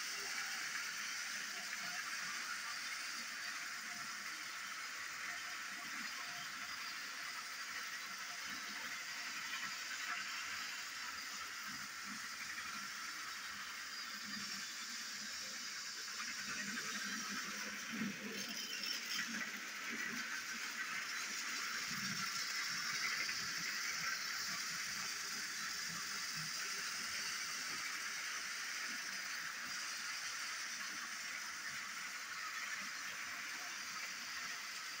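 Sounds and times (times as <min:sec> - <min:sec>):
toy train motor whir: 0:00.0 - 0:35.0.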